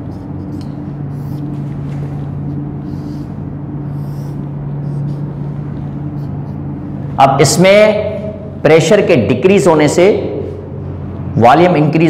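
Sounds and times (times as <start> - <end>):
marker squeaking on whiteboard: 0.0 - 5.4, 6.1 - 6.7
low hum: 0.0 - 11.4.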